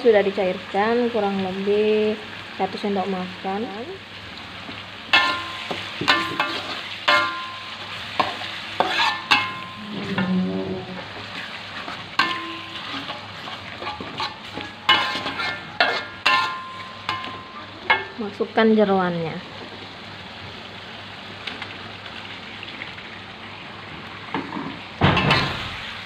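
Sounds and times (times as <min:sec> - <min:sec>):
low sizzle in a wok: 0:00.0 - 0:26.0
metal spatula clinking on pan: 0:05.1 - 0:09.8, 0:12.2 - 0:13.2, 0:13.8 - 0:18.2.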